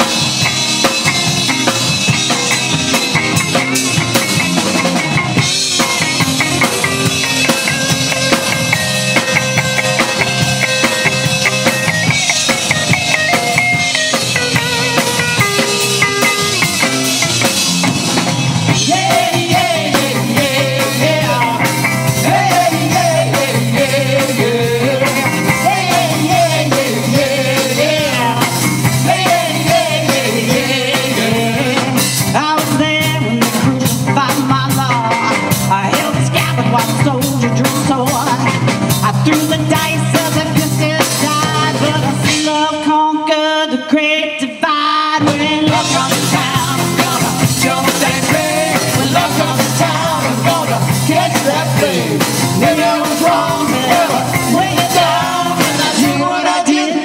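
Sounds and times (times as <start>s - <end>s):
electric guitar melody: 0.0s - 42.7s, 45.2s - 56.3s
live rock band playing: 0.0s - 43.9s, 45.1s - 57.0s
woman singing lead vocal: 18.7s - 57.0s.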